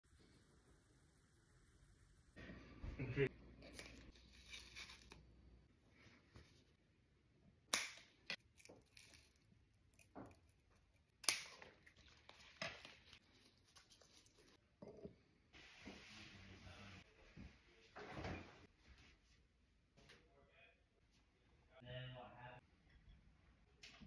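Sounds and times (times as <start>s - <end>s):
ribbon rustling: 3.6s - 5.3s, 11.6s - 14.6s.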